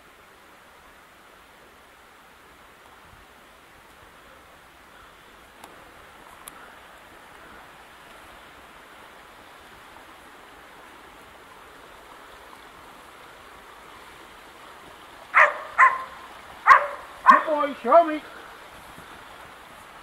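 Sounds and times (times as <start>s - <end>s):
steady outdoor hiss: 0.0s - 20.0s
dog barking: 15.4s - 17.6s.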